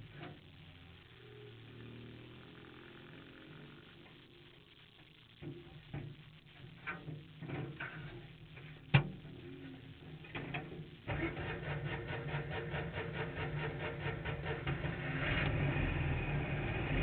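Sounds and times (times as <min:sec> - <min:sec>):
engine starting and idling: 0:11.1 - 0:17.0.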